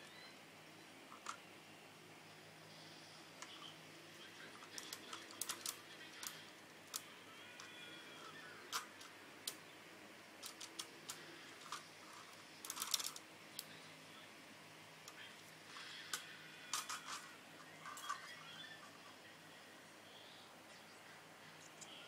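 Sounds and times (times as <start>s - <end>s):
plastic toy clicks and clatter: 4.6s - 7.0s, 10.4s - 11.8s, 12.6s - 13.2s, 16.1s - 17.3s.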